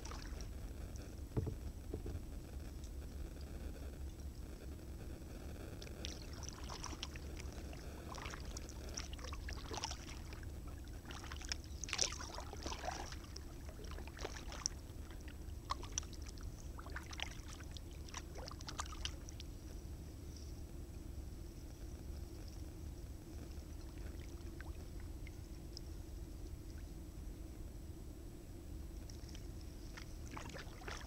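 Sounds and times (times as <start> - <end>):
paddle splashes and drips: 0.0 - 0.5, 6.0 - 19.5, 30.0 - 31.0
steady low rumble: 0.0 - 31.0.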